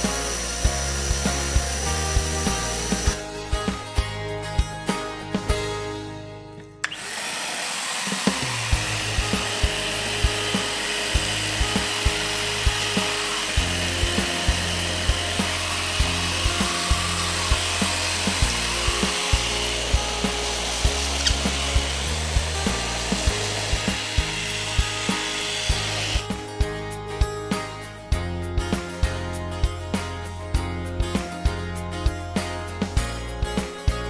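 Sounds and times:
vacuum cleaner running: 0.0s - 3.2s, 6.8s - 26.3s
background music with beat: 0.0s - 6.9s, 8.2s - 34.0s.

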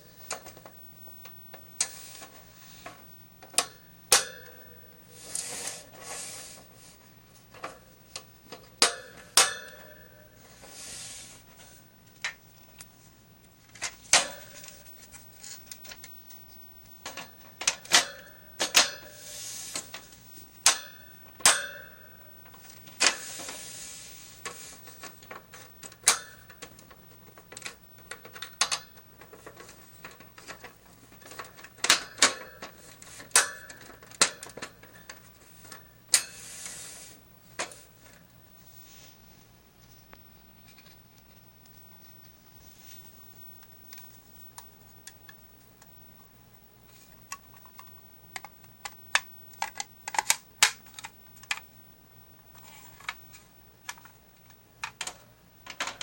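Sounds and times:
short scraping rustles: 5.1s - 6.9s
plastic and wire clicking: 24.4s - 35.8s, 47.1s - 51.7s, 52.5s - 56.0s.

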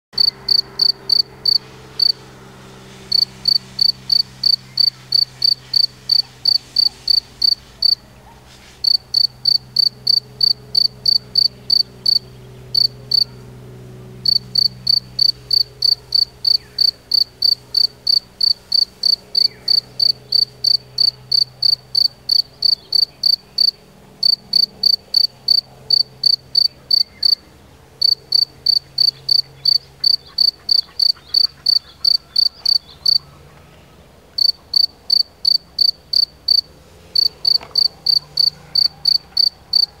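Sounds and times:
cricket chirping: 0.2s - 2.2s, 3.1s - 8.0s, 8.8s - 13.4s, 14.2s - 27.4s, 28.0s - 33.2s, 34.4s - 40.0s.

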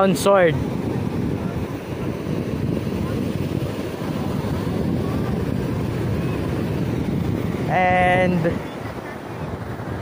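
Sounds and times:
surf washing: 0.0s - 10.0s
wind buffeting microphone: 0.0s - 10.0s.

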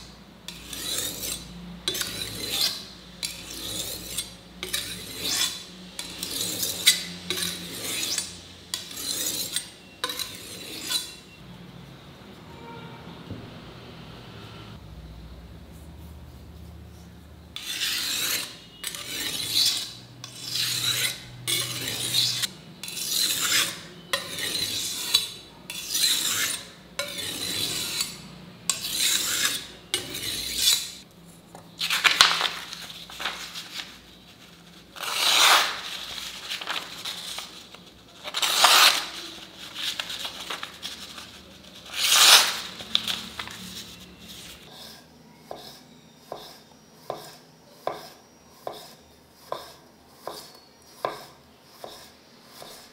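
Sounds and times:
knife rasping on sharpening stone: 0.5s - 11.3s, 17.6s - 31.0s, 34.9s - 36.2s, 40.9s - 42.8s, 43.8s - 52.9s
knife slicing paper: 31.8s - 44.6s.

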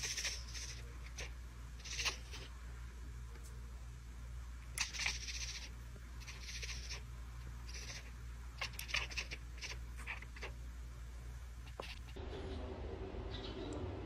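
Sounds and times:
cat chattering chirps: 0.0s - 2.5s, 4.6s - 10.6s.

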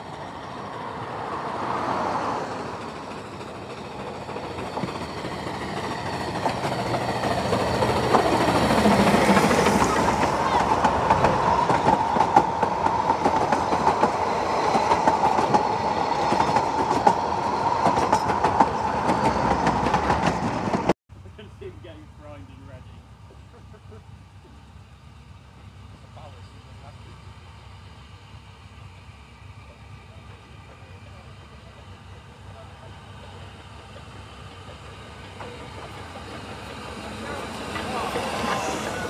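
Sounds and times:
steam locomotive passing: 0.0s - 39.0s
wheels clacking over rail joints: 0.6s - 21.0s, 30.6s - 39.0s
wheels ringing on rails: 29.4s - 39.0s.

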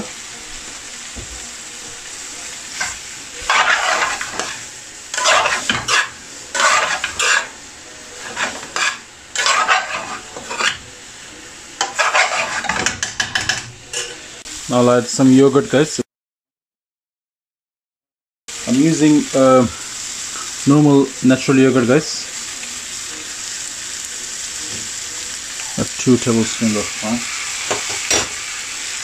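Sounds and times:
curry sizzling: 0.0s - 16.0s, 18.5s - 29.0s
metal spoon scraping a pan: 2.7s - 10.8s, 11.8s - 14.3s.

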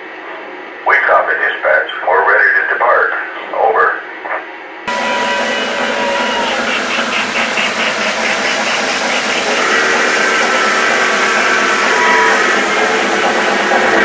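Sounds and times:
steady whining tones: 0.0s - 14.0s
model trains whirring on track: 4.9s - 14.0s.

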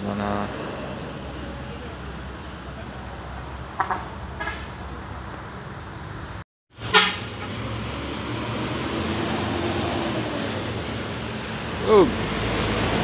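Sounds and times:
coach engine rumbling: 0.0s - 13.0s
bus horn toots: 3.8s - 4.8s, 6.8s - 7.6s.

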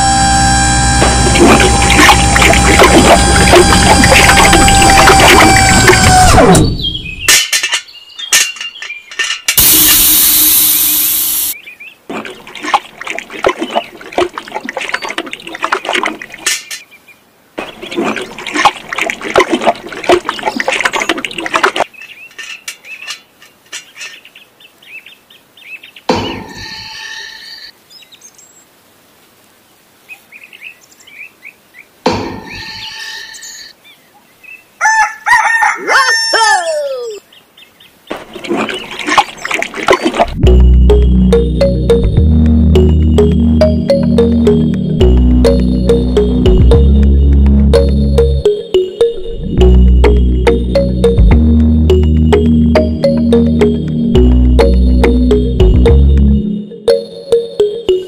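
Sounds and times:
bird calls and chirps: 6.6s - 9.3s, 21.9s - 28.6s.

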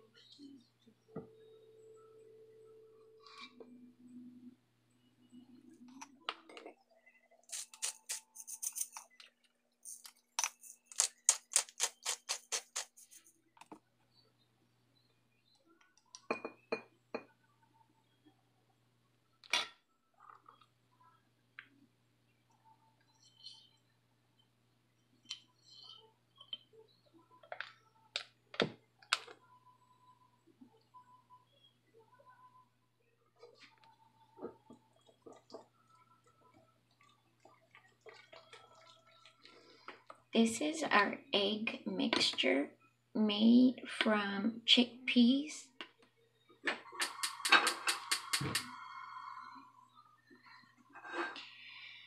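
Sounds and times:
spice grinder clicking: 10.9s - 12.9s.

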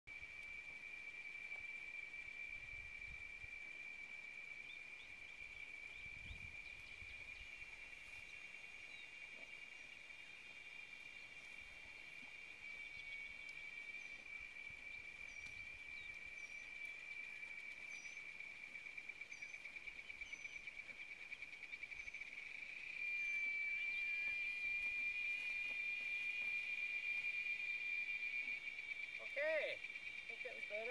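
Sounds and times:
high-pitched insect chorus: 0.1s - 30.9s.

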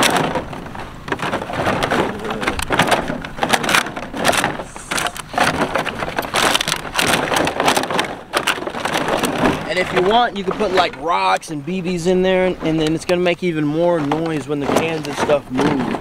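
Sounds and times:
plastic bottles crinkling and clattering: 0.0s - 16.0s.

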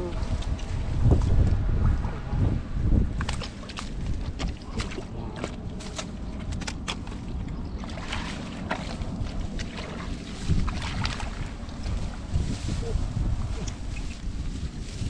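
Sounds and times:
wind on microphone: 0.0s - 15.0s
splashing in muddy water: 3.0s - 12.9s.

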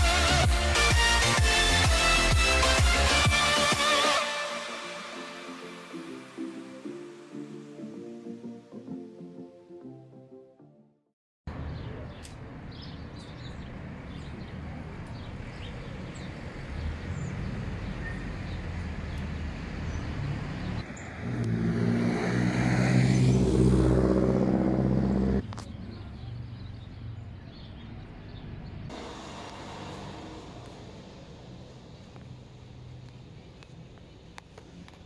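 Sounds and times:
vehicle engine and road noise: 11.5s - 35.0s.

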